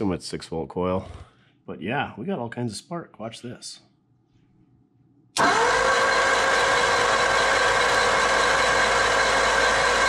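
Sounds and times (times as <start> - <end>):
starter motor cranking engine: 5.4 - 10.0.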